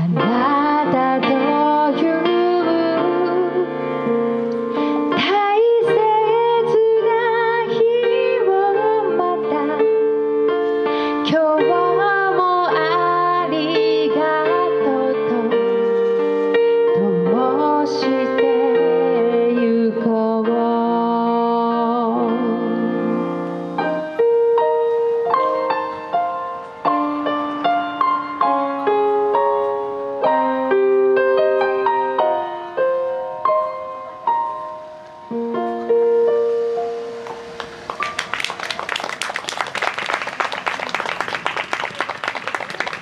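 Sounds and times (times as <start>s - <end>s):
woman singing with vibrato: 0.0s - 3.8s, 5.1s - 10.0s, 11.3s - 15.6s, 17.0s - 23.3s
electric keyboard playing: 0.0s - 41.4s.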